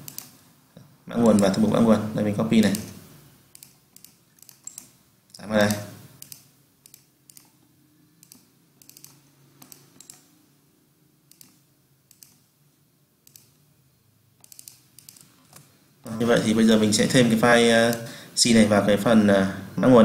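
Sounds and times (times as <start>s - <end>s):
computer mouse clicks: 0.0s - 0.4s, 1.2s - 1.6s, 2.6s - 5.0s, 5.6s - 7.6s, 8.2s - 10.3s, 11.3s - 12.5s, 13.2s - 13.6s, 14.4s - 15.7s.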